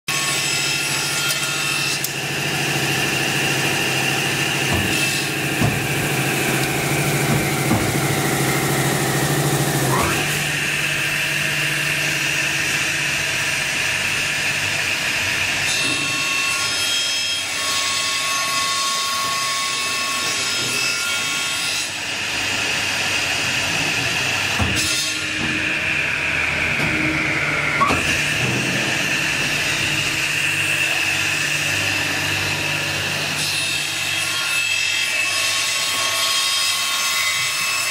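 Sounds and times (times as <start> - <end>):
saw blade whine: 0.1 - 37.9
low motor hum: 2.4 - 13.2.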